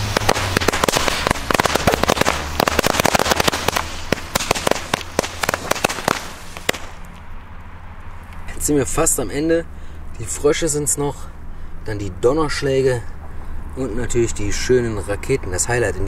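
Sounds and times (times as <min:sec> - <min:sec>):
firecrackers going off: 0:00.0 - 0:07.1.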